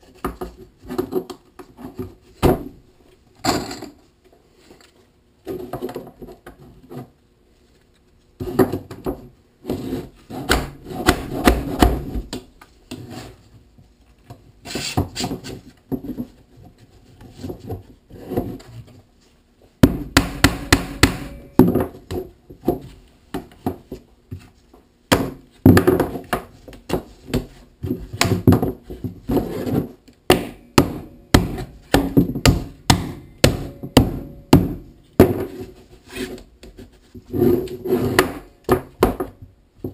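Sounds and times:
rubber mallet knocking plastic pipe: 19.8 - 21.8, 30.3 - 35.4.

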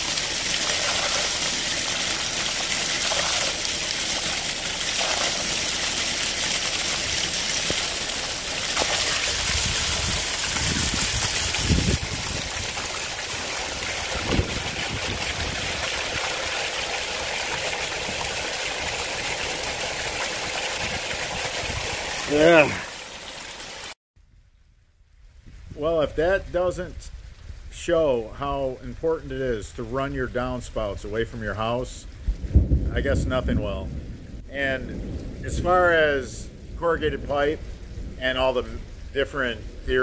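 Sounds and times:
water gushing from downspout: 0.0 - 24.0.

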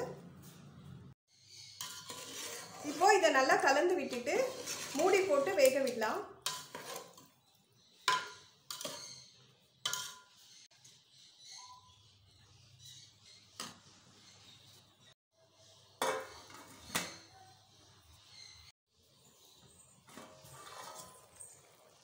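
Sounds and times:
metal spatula clinking on pot: 1.6 - 3.0, 4.1 - 7.4, 8.0 - 10.4
steel plate clanking on pot: 9.9 - 10.4.

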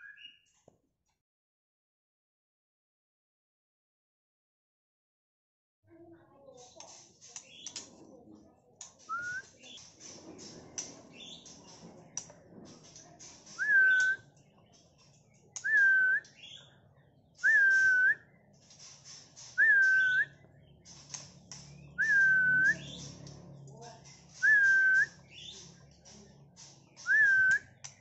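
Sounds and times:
sharp high bird chirps: 13.4 - 15.0, 17.4 - 23.4
clear whistled bird note: 17.4 - 18.1.

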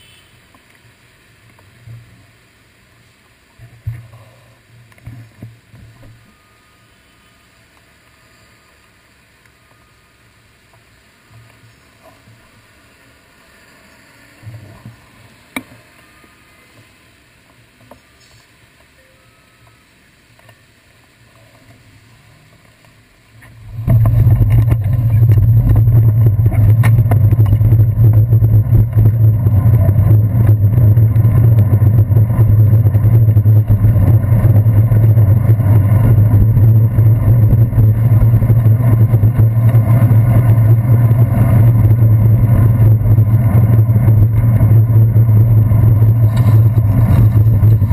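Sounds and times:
muffled street sound: 0.0 - 47.9
wind and road rumble: 10.2 - 18.9, 20.2 - 47.9.

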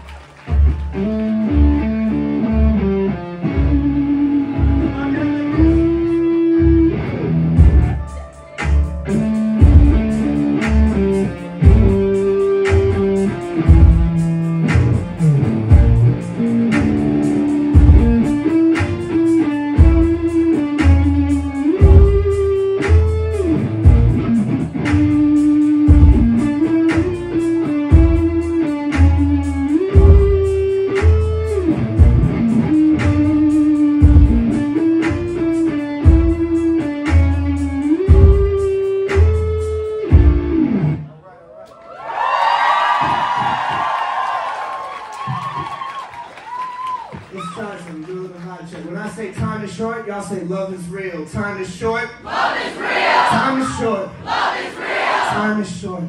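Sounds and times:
bass guitar: 0.4 - 41.1
electric guitar riff: 0.9 - 41.1
steady drum beat: 7.6 - 40.6.

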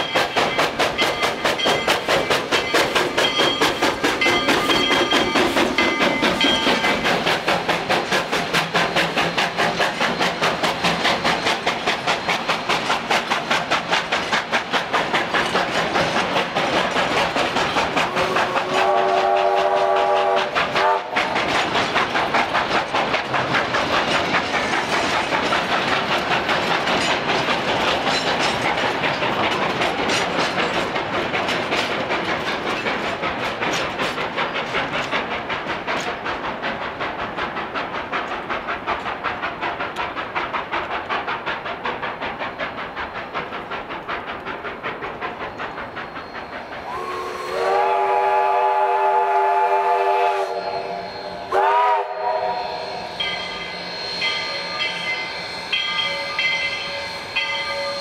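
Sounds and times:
steam train clatter: 0.0 - 58.0
steam locomotive whistle: 18.0 - 21.3, 46.7 - 58.0.

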